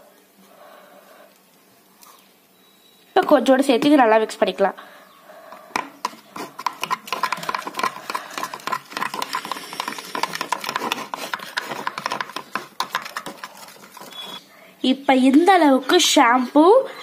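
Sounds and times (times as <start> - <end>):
spoon scraping plastic tub: 5.5 - 14.5.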